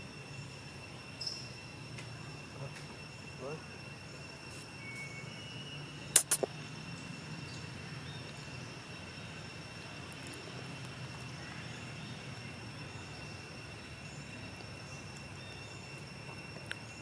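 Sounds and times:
high-pitched whine: 0.0s - 10.8s.

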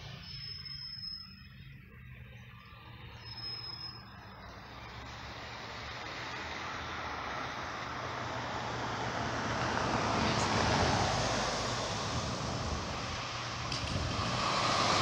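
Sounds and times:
car engine: 4.8s - 15.0s.

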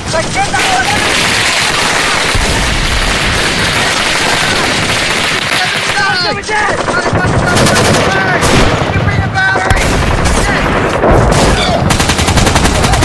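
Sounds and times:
machine-gun fire: 0.0s - 13.0s
rapid gunfire: 0.0s - 13.0s.

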